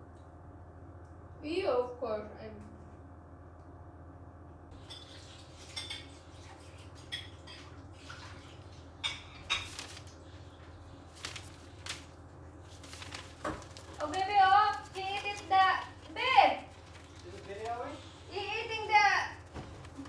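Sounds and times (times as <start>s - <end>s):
rabbit crinkling newspaper: 9.4s - 20.0s.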